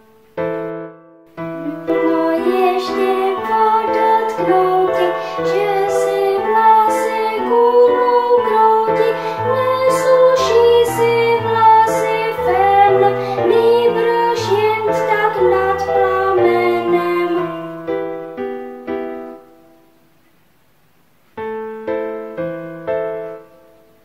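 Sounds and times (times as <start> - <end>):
piano accompaniment: 0.0 - 20.2, 21.3 - 24.0
girl singing: 1.4 - 18.1.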